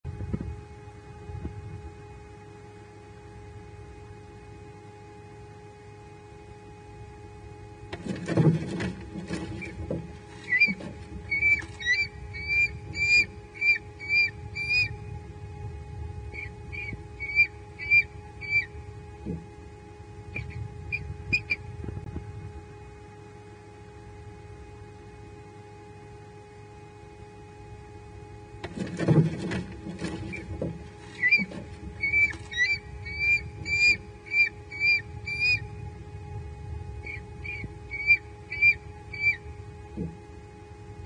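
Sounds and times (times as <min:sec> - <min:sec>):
eaglets squealing in alarm: 0:09.6 - 0:15.0, 0:16.3 - 0:18.8, 0:20.3 - 0:21.6, 0:30.3 - 0:35.7, 0:37.0 - 0:39.5.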